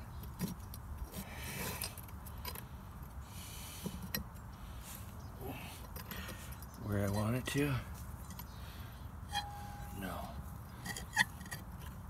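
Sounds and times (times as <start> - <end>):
metal bolt scraping: 9.3 - 12.0.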